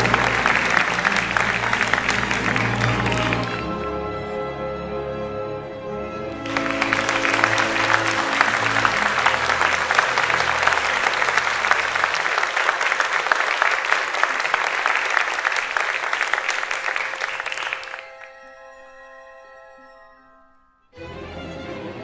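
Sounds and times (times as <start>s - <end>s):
crowd applauding: 0.0s - 3.9s, 6.3s - 18.6s
music: 0.0s - 12.7s, 16.1s - 22.0s.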